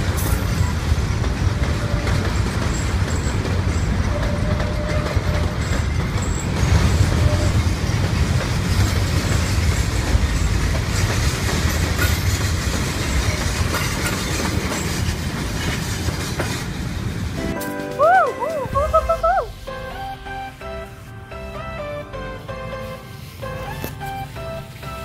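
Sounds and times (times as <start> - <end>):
wheels clacking over rails: 0.0 - 18.6
train wagons rumbling: 0.0 - 25.0.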